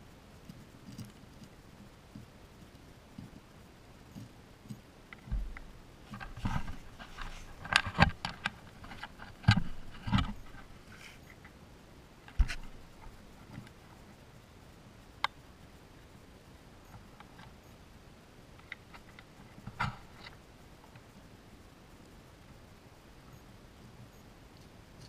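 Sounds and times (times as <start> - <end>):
knocks and scrapes on camera housing: 5.3 - 11.2, 12.3 - 12.8.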